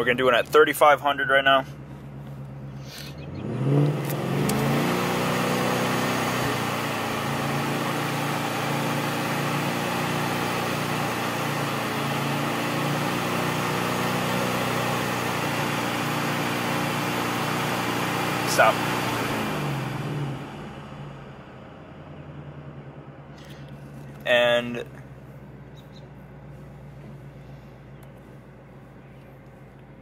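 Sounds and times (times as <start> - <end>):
car engine revving: 0.0 - 30.0.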